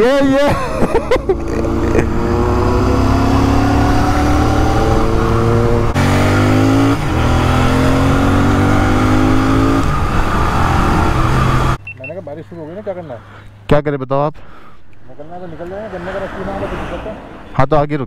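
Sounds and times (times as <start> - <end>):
motorcycle engine accelerating: 0.9 - 11.8.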